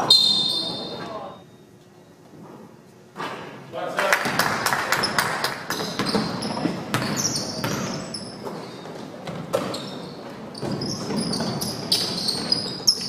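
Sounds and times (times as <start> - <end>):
sneakers squeaking on court: 0.0 - 1.3, 5.0 - 13.0
basketball bouncing on hardwood: 6.0 - 8.0.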